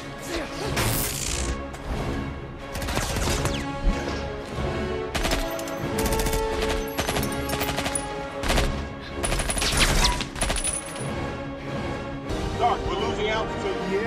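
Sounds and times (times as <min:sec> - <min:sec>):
film music score: 0:00.0 - 0:14.0
rapid gunfire: 0:02.7 - 0:03.6, 0:05.1 - 0:10.6.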